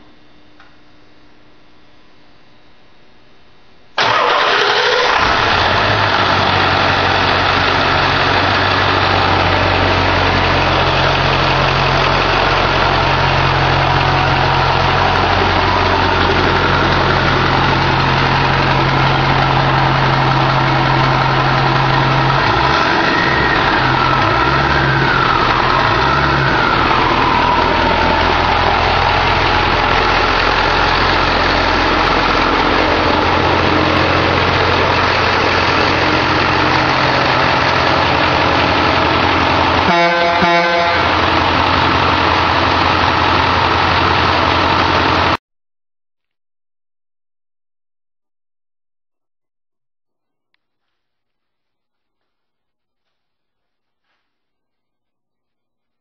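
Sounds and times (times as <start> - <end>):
diesel engine idling: 4.0 - 45.4.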